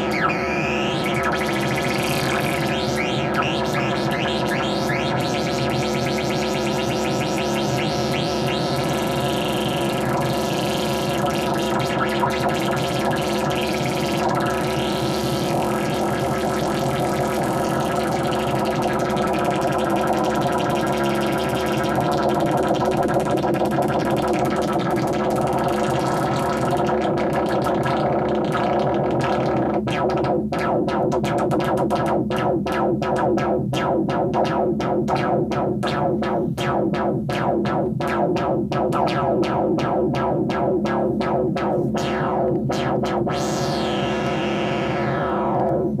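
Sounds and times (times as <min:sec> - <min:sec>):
distorted synthesizer drone pulsing: 0:00.0 - 0:46.0
rising synth sweep: 0:42.0 - 0:46.0.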